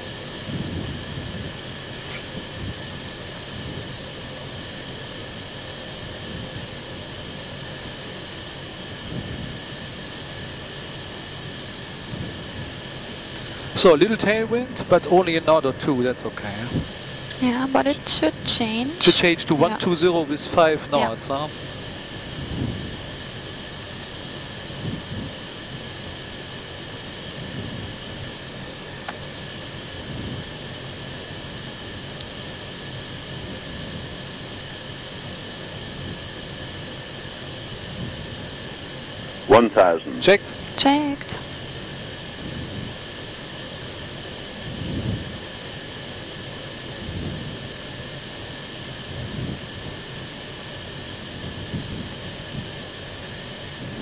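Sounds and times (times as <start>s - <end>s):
airflow and air conditioning rush: 0.0s - 54.0s
faint steady fan tones: 0.0s - 54.0s
faint steady whine: 0.0s - 54.0s.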